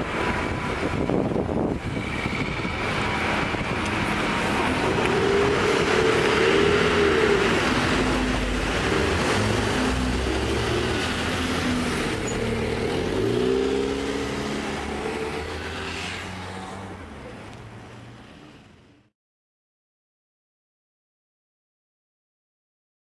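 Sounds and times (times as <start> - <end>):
bus driving by: 0.0 - 19.1
car passing on wet road: 2.9 - 17.0.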